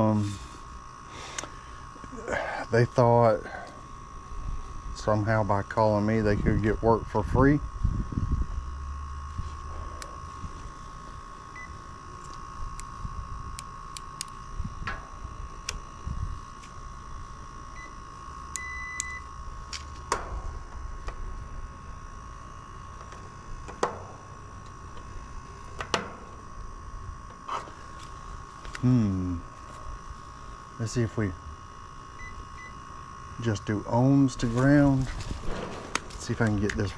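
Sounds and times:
steady high whine: 0.0s - 36.9s
clamp meter beeping: 17.7s - 19.4s, 32.2s - 32.8s.

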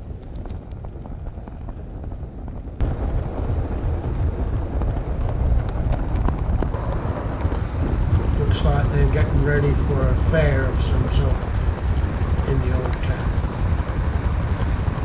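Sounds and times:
model train running on track: 8.1s - 11.8s.

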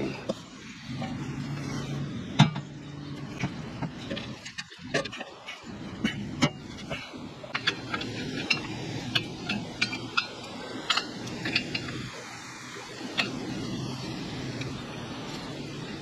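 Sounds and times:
metal exhaust parts clinking: 0.0s - 12.2s, 13.0s - 16.0s
steady low background noise: 0.0s - 16.0s.

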